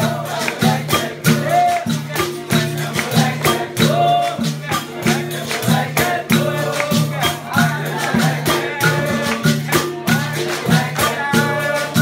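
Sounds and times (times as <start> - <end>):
berimbaus struck rhythmically: 0.0 - 12.0
pandeiro: 0.0 - 12.0
people singing: 0.0 - 12.0.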